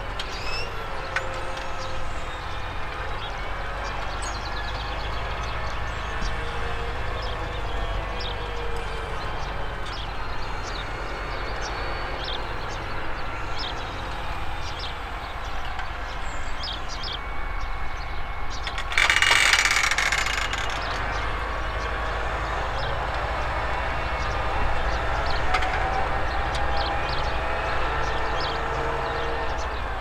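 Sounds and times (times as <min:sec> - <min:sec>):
tractor diesel engine under load: 0:00.0 - 0:30.0.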